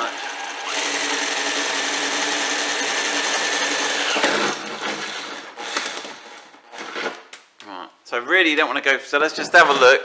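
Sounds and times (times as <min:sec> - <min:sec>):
cordless drill whining: 0:00.0 - 0:06.5
drill bit through sheet metal: 0:00.0 - 0:06.5.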